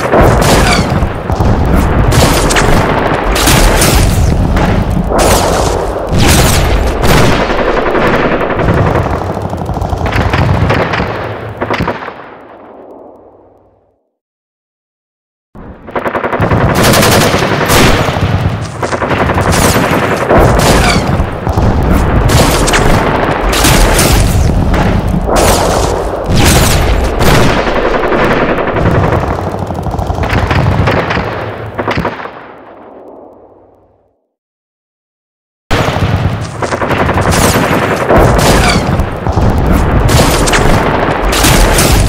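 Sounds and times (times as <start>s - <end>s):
single gunshots: 0.0s - 7.6s, 19.2s - 28.1s, 35.7s - 42.0s
rapid machine-gun fire: 0.0s - 12.0s, 15.9s - 32.2s, 35.7s - 42.0s.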